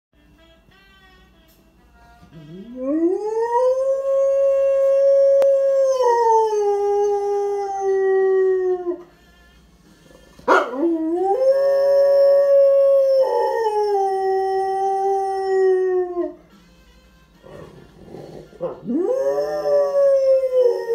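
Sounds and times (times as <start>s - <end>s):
dog howling: 10.5s - 16.4s, 17.5s - 20.9s.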